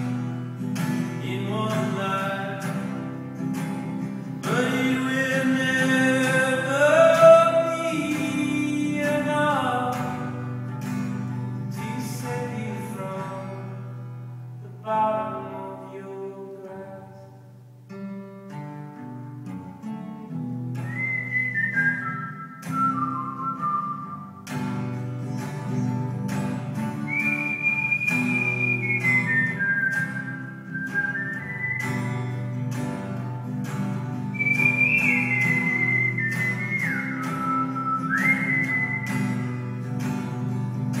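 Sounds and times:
acoustic guitar strumming: 0.0 - 41.0
man whistling a melody: 3.9 - 10.8, 20.6 - 32.8, 34.3 - 40.3.

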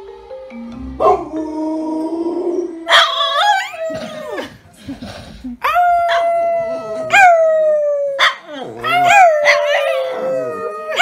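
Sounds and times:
dog howling: 1.0 - 4.4, 5.7 - 11.0.

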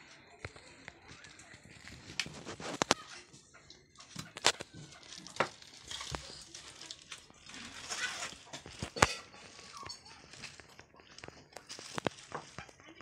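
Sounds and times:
clicks and taps on metal dishes: 8.5 - 12.6.

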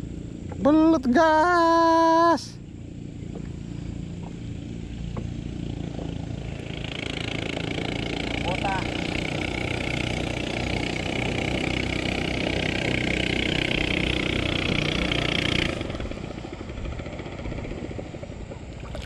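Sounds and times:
small boat engine running: 0.0 - 19.0
water noise: 18.4 - 19.0.

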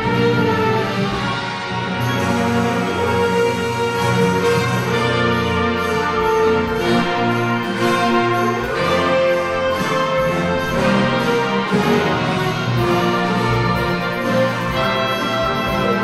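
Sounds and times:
wind band playing chords: 0.0 - 16.0.

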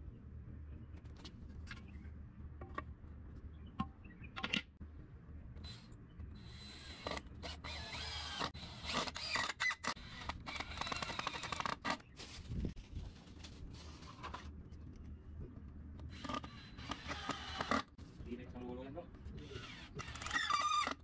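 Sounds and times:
electric drill whining in bursts: 6.4 - 12.0, 16.2 - 17.8, 19.4 - 21.0.

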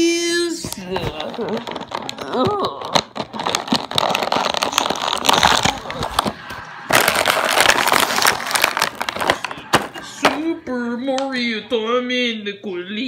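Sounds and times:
plastic packaging crinkling: 0.4 - 10.5.

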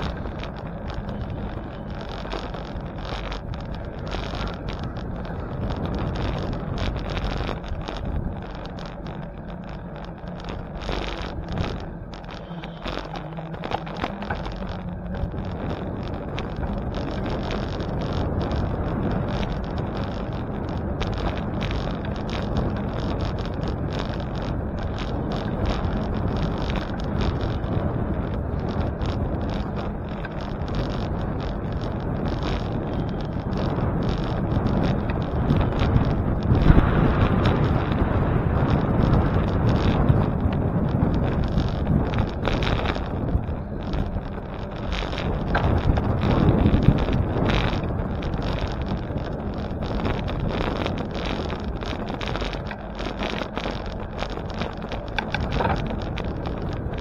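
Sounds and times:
bicycle road noise: 0.0 - 57.0
small rattles and knocks: 0.0 - 57.0
wind rushing over microphone: 0.0 - 57.0.

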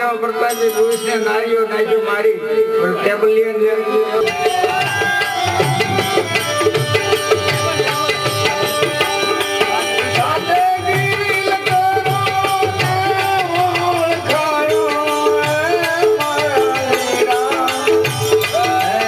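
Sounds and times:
tabla strokes: 4.2 - 19.0.

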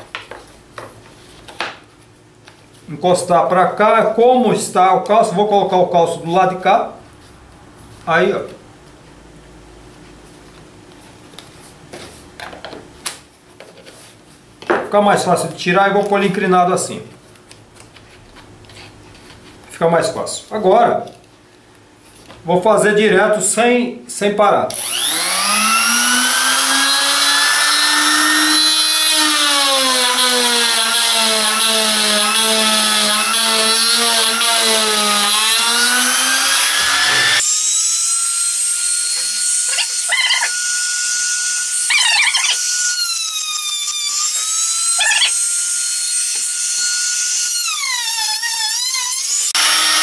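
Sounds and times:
router whining while cutting: 24.7 - 50.0.

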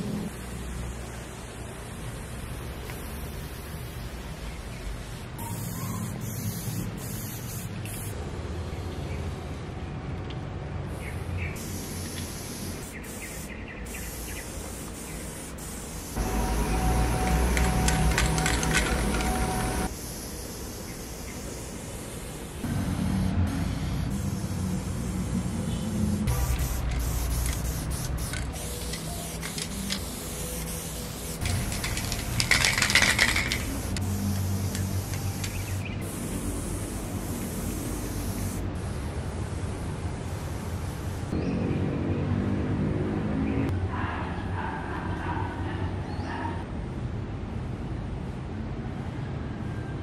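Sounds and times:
spray can hissing: 0.3 - 4.4, 5.1 - 8.2, 11.6 - 41.4
spray can clicking: 16.3 - 19.8, 26.5 - 30.8, 31.4 - 35.8.

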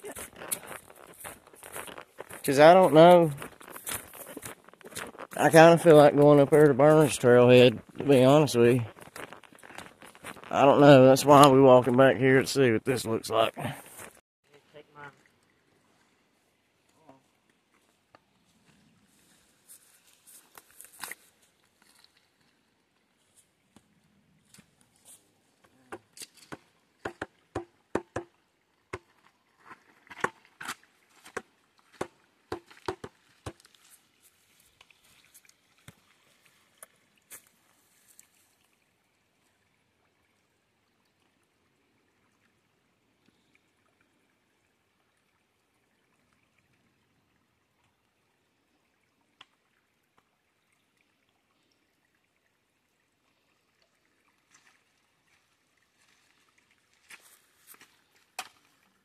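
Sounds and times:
creek trickling over stones: 0.0 - 59.0.

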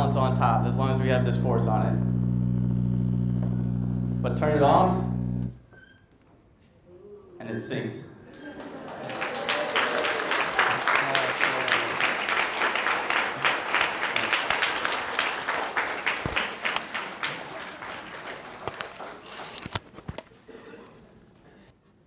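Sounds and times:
audience applauding: 8.3 - 19.8.

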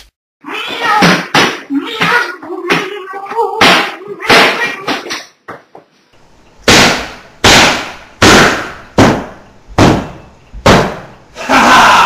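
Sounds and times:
loud bangs: 6.6 - 11.3.

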